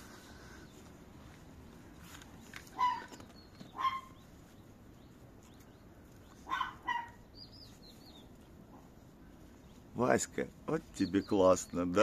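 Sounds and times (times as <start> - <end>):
distant dog barking: 2.7 - 4.2, 6.4 - 7.3.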